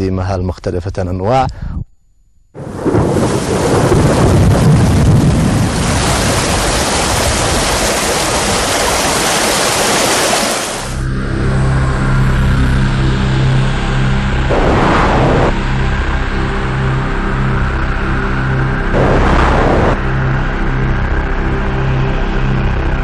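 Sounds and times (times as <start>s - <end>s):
torrential water rushing: 2.6s - 11.0s
music with low sustained tones: 11.0s - 14.5s, 20.0s - 23.0s.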